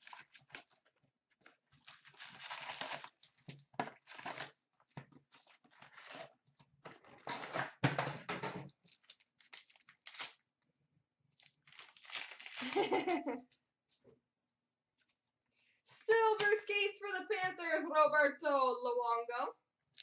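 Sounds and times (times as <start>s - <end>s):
cardboard and wrappers rustling: 0.0s - 8.1s, 11.4s - 13.3s.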